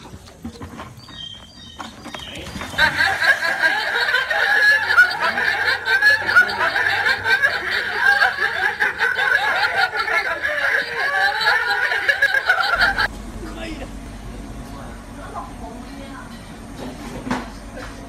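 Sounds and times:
people laughing: 0:02.4 - 0:14.0, 0:17.0 - 0:18.0.

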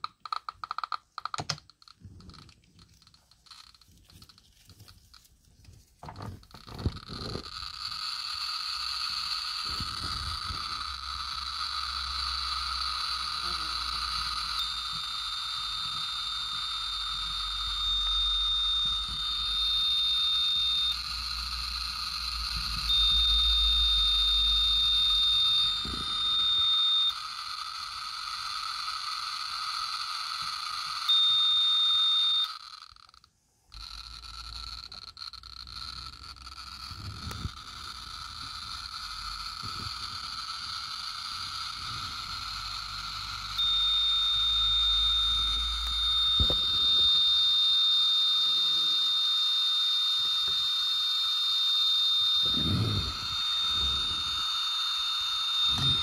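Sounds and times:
geiger counter buzzing clicks: 0:00.0 - 0:05.3, 0:06.0 - 0:56.0
steady high tone: 0:03.0 - 0:32.8, 0:33.8 - 0:56.0.

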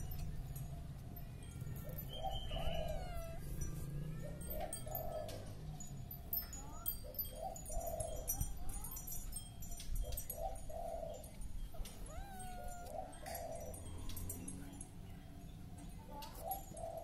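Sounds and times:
small birds chirping: 0:00.0 - 0:17.0
doves cooing: 0:01.8 - 0:08.5, 0:10.0 - 0:14.6, 0:16.3 - 0:17.0
kitten mewing: 0:02.6 - 0:03.5, 0:12.0 - 0:13.0.

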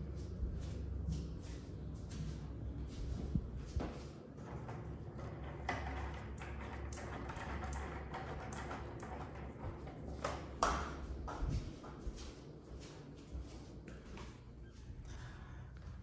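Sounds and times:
footsteps on hardwood floor: 0:00.1 - 0:04.1, 0:10.2 - 0:14.5.

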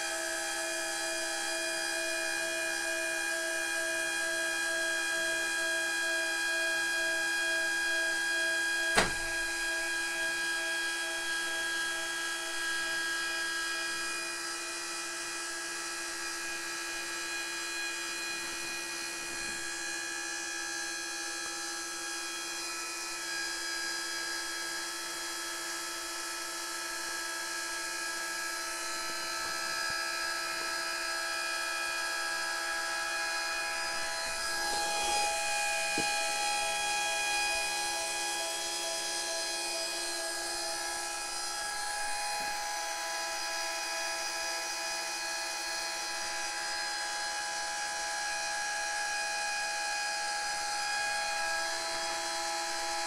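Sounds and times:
actuator motor whining: 0:31.4 - 0:38.8.

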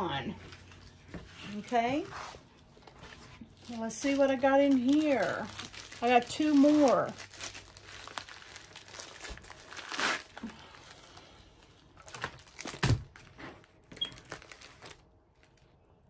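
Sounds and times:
plastic packaging crinkling: 0:03.3 - 0:15.9.

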